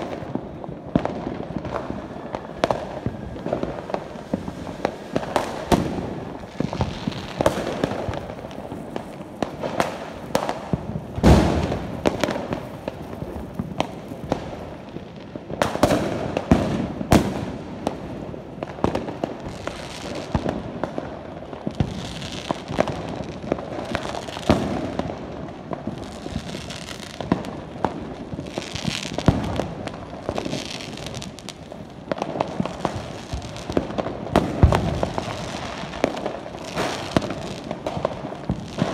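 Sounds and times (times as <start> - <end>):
firecracker bangs: 0.0 - 14.8, 15.5 - 20.9, 32.2 - 38.9
fireworks crackling: 0.0 - 38.9.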